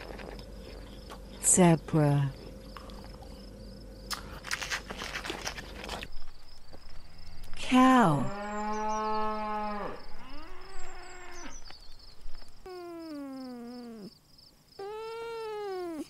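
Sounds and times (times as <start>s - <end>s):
cow mooing: 8.2s - 11.6s
kitten meowing: 14.8s - 16.0s.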